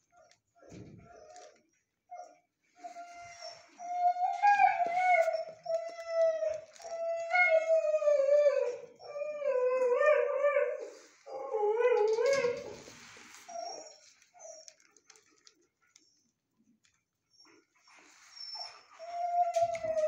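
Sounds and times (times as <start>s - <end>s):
dog whining and howling: 1.0s - 12.9s, 13.5s - 14.8s, 18.2s - 20.0s.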